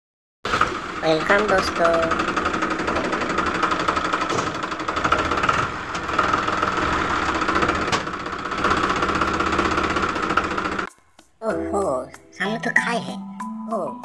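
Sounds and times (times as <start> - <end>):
fast-rattling tractor engine: 0.5 - 10.9.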